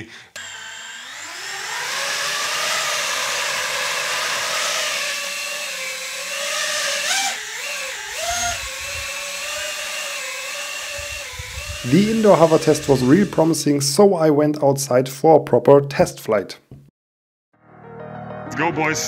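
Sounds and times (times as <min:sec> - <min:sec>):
drone motors whining: 0:00.0 - 0:13.7.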